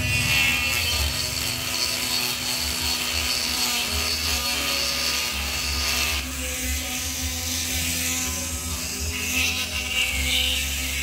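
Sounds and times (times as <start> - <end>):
grinder motor whine: 0.0 - 11.0
stone grinding metal hiss: 0.0 - 11.0.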